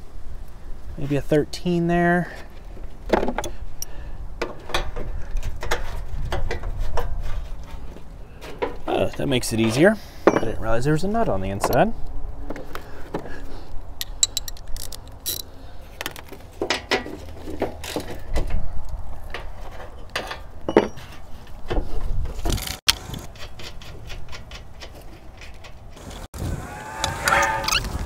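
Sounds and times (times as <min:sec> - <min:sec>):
tools clinking: 0:14.0 - 0:15.6.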